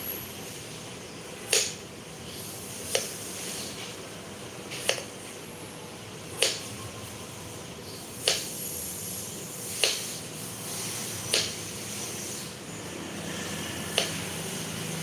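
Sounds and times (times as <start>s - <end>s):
knife chopping on wooden board: 6.4s - 6.7s, 8.2s - 8.5s, 9.8s - 10.1s, 11.3s - 11.6s, 13.9s - 14.3s.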